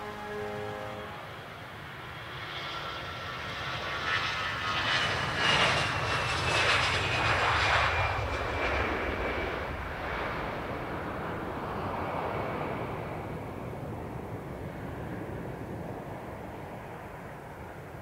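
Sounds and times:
jet engines at takeoff thrust: 0.0s - 18.0s.

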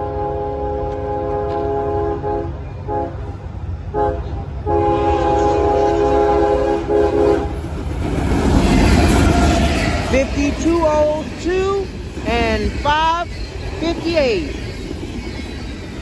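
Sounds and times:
train horn blasts: 0.0s - 7.6s
freight train rumble: 0.0s - 16.0s.

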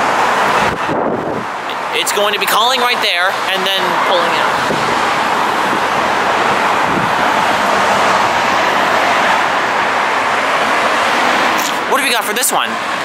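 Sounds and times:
wind on microphone: 0.0s - 1.8s, 3.9s - 11.6s
street traffic: 0.0s - 13.0s.

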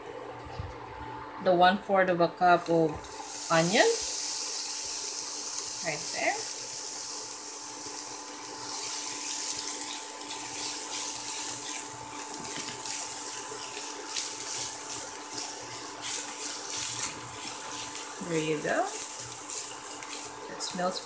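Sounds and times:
onion sizzling in pan: 2.5s - 21.0s
spatula scraping pan: 7.8s - 21.0s.

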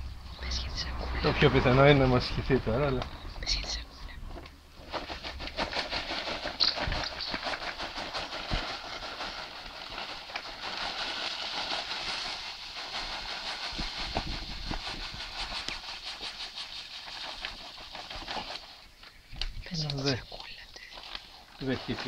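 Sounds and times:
foil fizzing and crackling in solution: 5.6s - 19.0s, 19.8s - 22.0s.

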